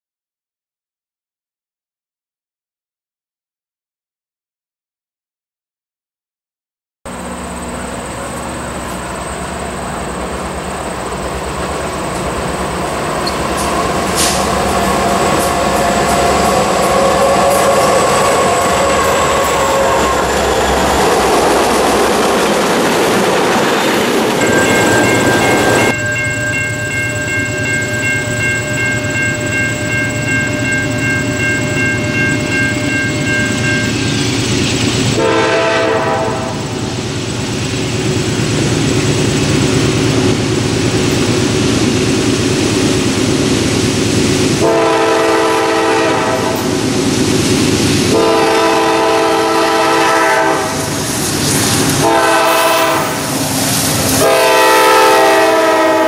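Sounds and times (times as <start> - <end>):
diesel engine rumble: 7.1 - 25.7
steady high-pitched tone: 7.1 - 35.2
train wheels clattering: 7.7 - 35.3
train horn: 13.6 - 21.4, 35.2 - 36.7, 44.6 - 46.7, 48.1 - 50.9, 52.0 - 53.4, 54.1 - 56.0.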